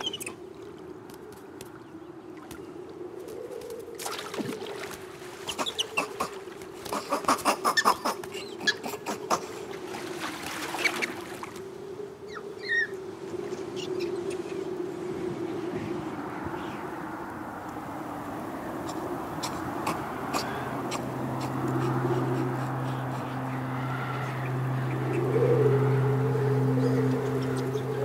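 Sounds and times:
steady low drone: 0:15.3 - 0:28.0.

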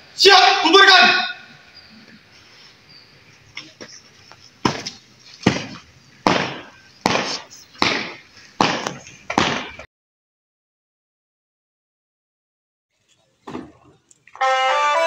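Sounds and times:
marching footsteps on pavement: 0:03.2 - 0:09.9.

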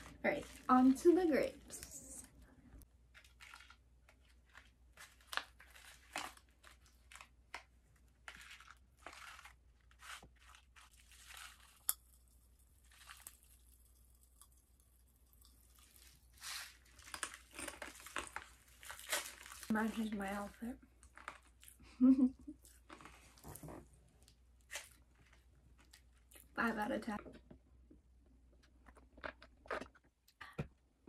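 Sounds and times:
popping candy crackling: 0:03.1 - 0:21.6.

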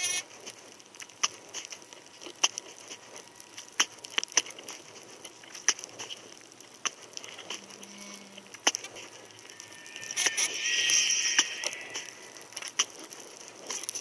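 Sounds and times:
low hum: 0:07.2 - 0:12.9.

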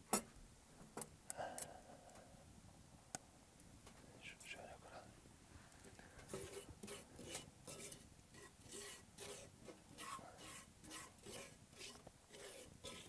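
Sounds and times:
wooden spoon scraping a pan: 0:06.2 - 0:13.0.

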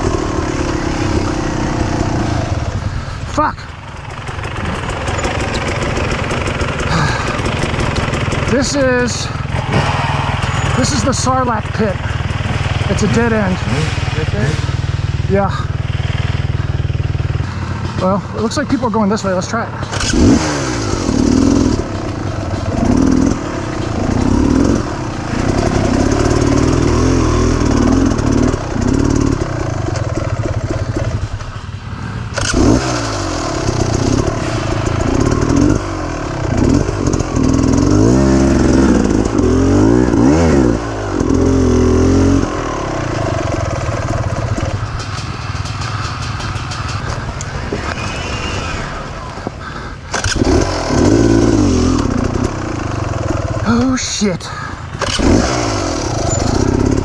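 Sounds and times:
dirt bike engine revving: 0:00.0 - 0:54.0, 0:54.8 - 0:57.0.

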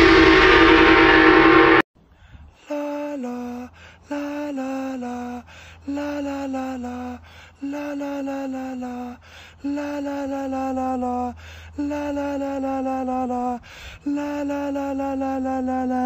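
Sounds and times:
quick breaths: 0:02.0 - 0:04.2, 0:05.4 - 0:05.9, 0:07.2 - 0:07.6, 0:09.2 - 0:09.6, 0:11.3 - 0:11.8, 0:13.6 - 0:14.1
man singing held vowels: 0:02.7 - 0:16.0.

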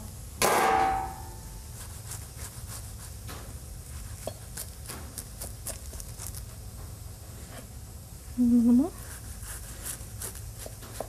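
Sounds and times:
low steady hum: 0:00.0 - 0:11.0
knife sawing pastry crust: 0:01.7 - 0:03.3, 0:03.9 - 0:06.6, 0:09.0 - 0:11.0.

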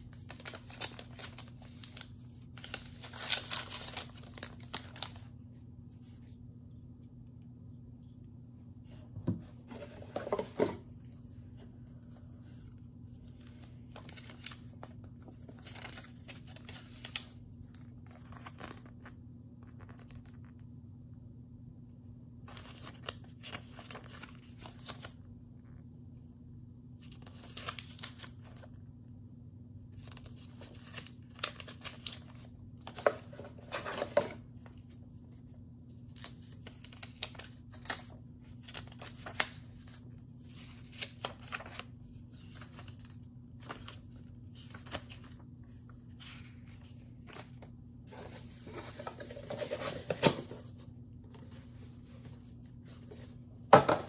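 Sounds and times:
paper rustling: 0:00.0 - 0:05.3, 0:09.6 - 0:20.4, 0:29.9 - 0:53.4
faint low hum: 0:00.0 - 0:54.0.

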